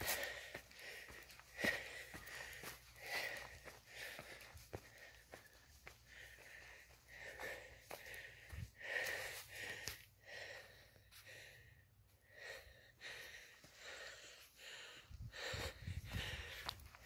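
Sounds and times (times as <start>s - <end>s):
footsteps on dirt and dry leaves: 0.0s - 10.0s
person breathing: 0.0s - 17.0s.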